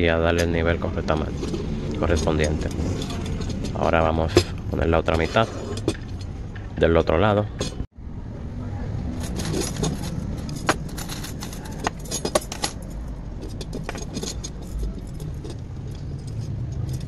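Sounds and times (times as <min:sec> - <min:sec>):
steel spokes clinking: 0:00.0 - 0:07.9, 0:09.0 - 0:17.0.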